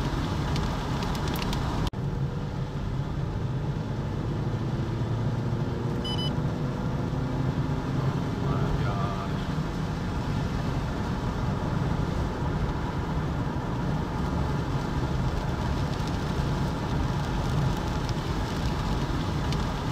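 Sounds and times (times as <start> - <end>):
rain drops ticking on car: 0.0 - 1.9, 8.5 - 19.9
vehicle rumble: 0.0 - 19.9.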